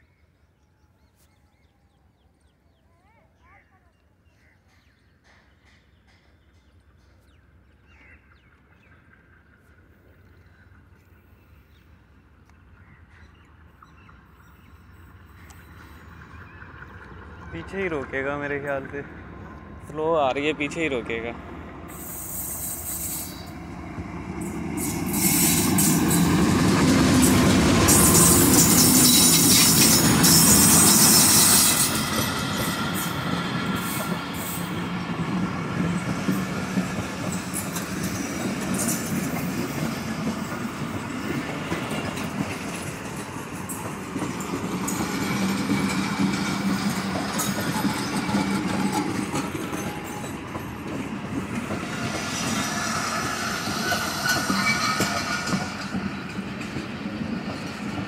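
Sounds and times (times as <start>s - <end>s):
train coaches rumbling: 4.6s - 58.0s
locomotive passing: 5.5s - 58.0s
wheels clicking over rail joints: 35.8s - 58.0s.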